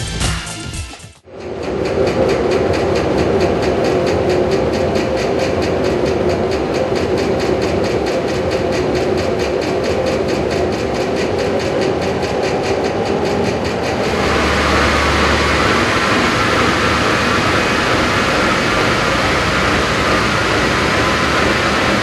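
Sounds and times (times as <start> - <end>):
wind tunnel air rushing: 1.2 - 22.0.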